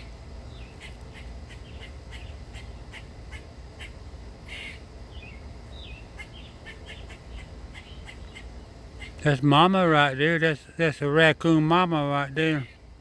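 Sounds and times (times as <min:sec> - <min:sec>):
birds chirping: 0:00.0 - 0:13.0
harsh bird call: 0:00.6 - 0:09.3.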